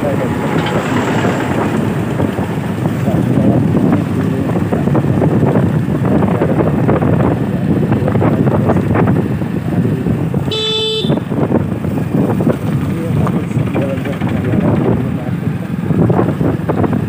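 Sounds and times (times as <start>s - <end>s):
motorcycle running: 0.0s - 17.0s
wind buffeting microphone: 0.0s - 17.0s
vehicle horn toot: 10.5s - 11.3s.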